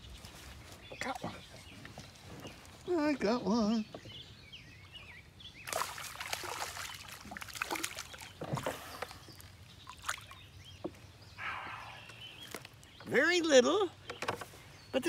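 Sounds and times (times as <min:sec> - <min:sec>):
fish splashing in water: 0:05.6 - 0:10.5.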